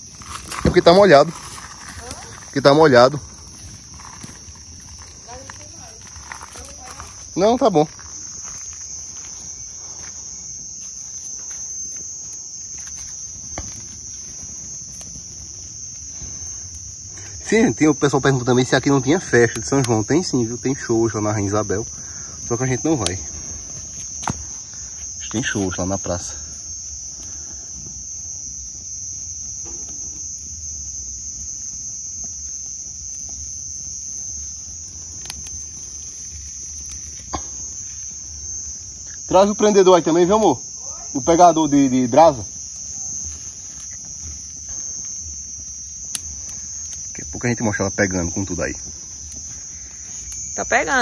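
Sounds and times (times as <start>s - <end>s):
crickets chirping: 0.0s - 51.0s
wood fire crackling: 0.0s - 51.0s.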